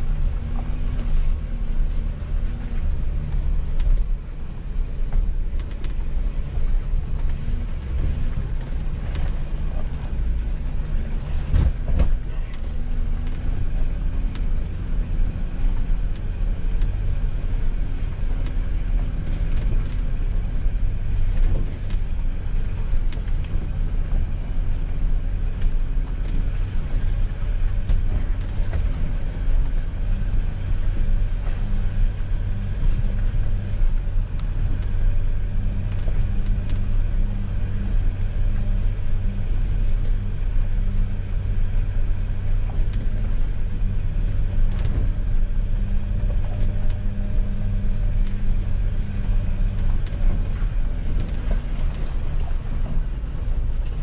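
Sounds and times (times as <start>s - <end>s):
knocks and rattles over bumps: 0.0s - 40.2s
engine running at low revs: 0.0s - 54.0s.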